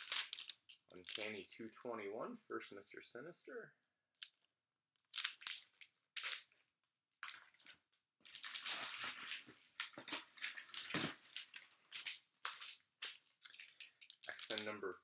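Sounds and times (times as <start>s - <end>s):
plastic crinkling and knocking: 0.0s - 1.3s, 7.2s - 14.8s
plastic rustling and clacking: 0.0s - 1.3s, 7.2s - 14.8s.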